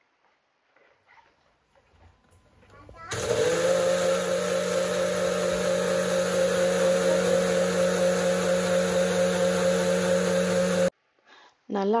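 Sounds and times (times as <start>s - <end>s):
blender motor running: 3.1s - 10.9s.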